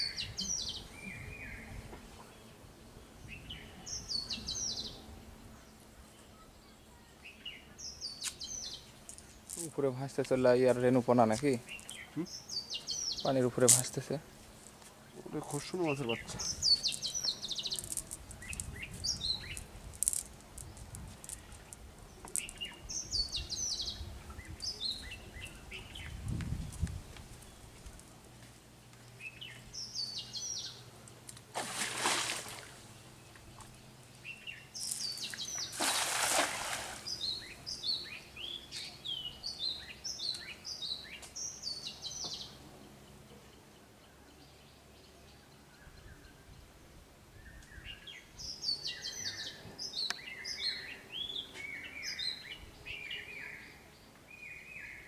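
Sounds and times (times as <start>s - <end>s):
small birds chirping: 0.0s - 55.0s
net splashing into water: 31.5s - 32.8s, 35.7s - 37.1s.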